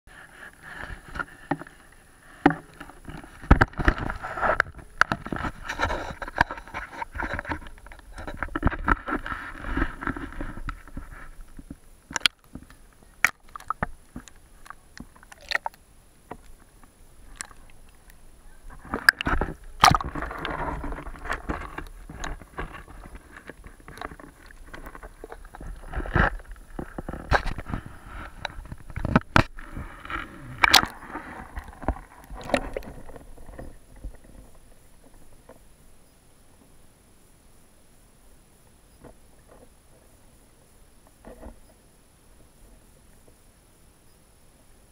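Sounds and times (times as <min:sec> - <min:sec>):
water sloshing and gurgling: 0:00.1 - 0:35.6.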